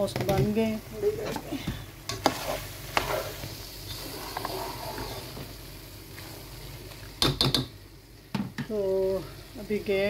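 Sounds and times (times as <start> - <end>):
masala sizzling: 0.0 - 10.0
spatula stirring in steel pot: 1.3 - 5.5.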